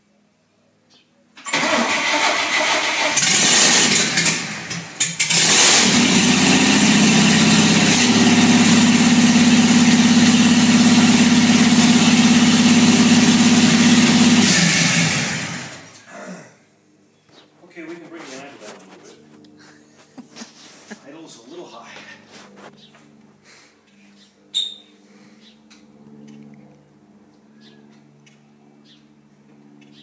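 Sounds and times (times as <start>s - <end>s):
pickup engine cranking and idling: 1.4s - 16.1s.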